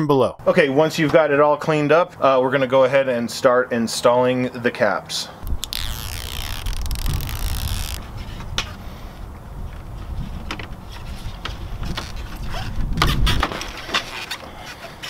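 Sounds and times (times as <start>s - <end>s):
tape liner peeling off: 5.4s - 8.1s.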